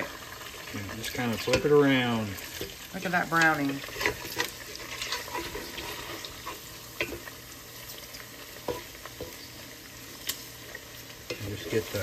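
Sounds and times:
bacon sizzling: 0.0 - 12.0
wooden spatula scraping pot: 0.9 - 7.4.

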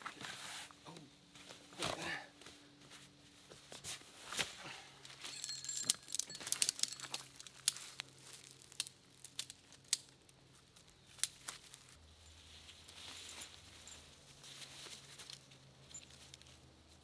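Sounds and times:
sharp snaps and clicks: 6.6 - 10.2.

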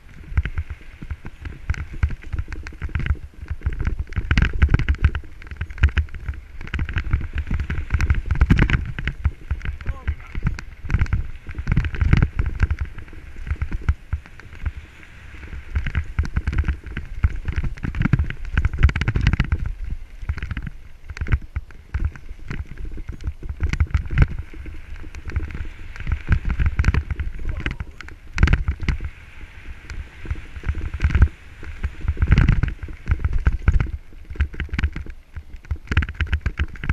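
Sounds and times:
bike rattling over bumps: 0.0 - 36.9
tyres crunching over stones: 0.0 - 36.9.

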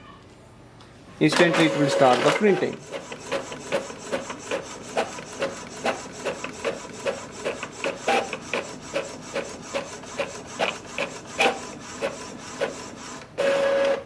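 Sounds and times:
printer carriage whirring: 1.2 - 14.0
printer ticking: 1.3 - 14.0.

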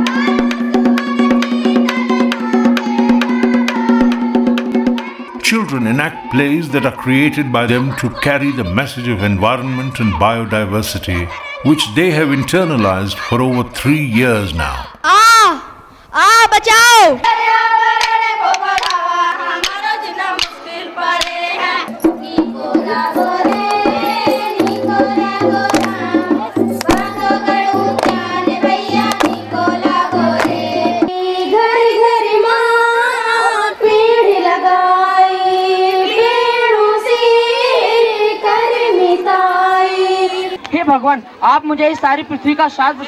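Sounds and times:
girls singing: 0.0 - 14.6, 17.0 - 40.7
low rhythmic beat: 21.9 - 31.2.

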